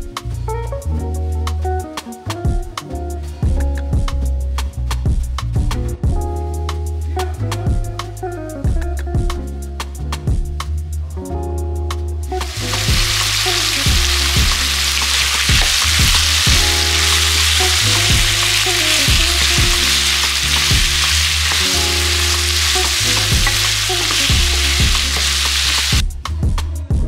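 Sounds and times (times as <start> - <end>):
meat sizzling in oil: 12.4 - 26.0.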